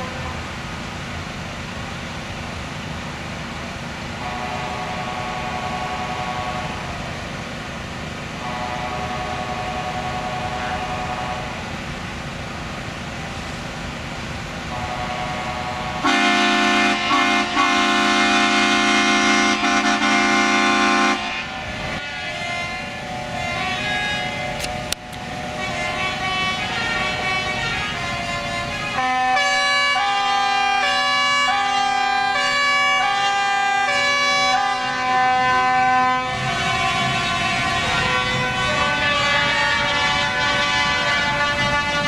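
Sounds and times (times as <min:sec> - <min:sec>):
truck air horns: 0:04.2 - 0:06.8, 0:08.4 - 0:11.6, 0:14.7 - 0:42.0.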